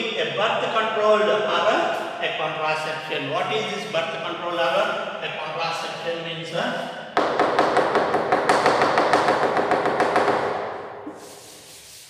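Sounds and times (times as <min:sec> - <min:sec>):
duster scrubbing a chalkboard: 0:11.1 - 0:12.0.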